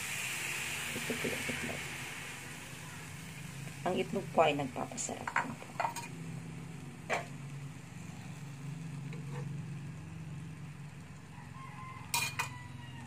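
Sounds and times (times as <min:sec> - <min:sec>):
low mechanical hum: 0:00.0 - 0:13.0
cookware metal clinks: 0:12.1 - 0:12.6.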